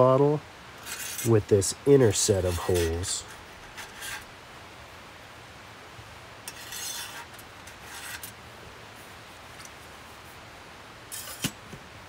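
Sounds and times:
metal rod scraping metal: 0:00.8 - 0:01.4, 0:02.4 - 0:04.3, 0:06.5 - 0:08.4, 0:11.1 - 0:11.6.

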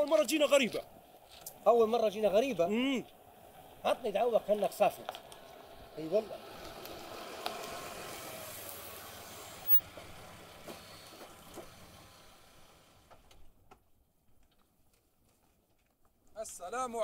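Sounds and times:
car engine: 0:03.4 - 0:13.4.

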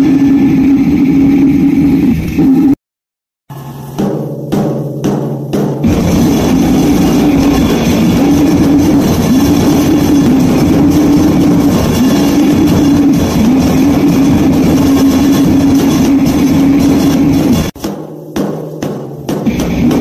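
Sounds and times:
drum kit pounding: 0:03.5 - 0:20.0
distorted guitar riffs: 0:05.8 - 0:17.8, 0:19.4 - 0:20.0
held low note: 0:05.9 - 0:17.7.

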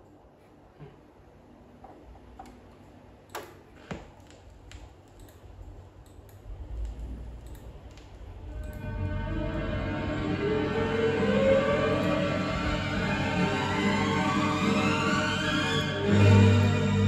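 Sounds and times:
music: 0:08.5 - 0:17.0.

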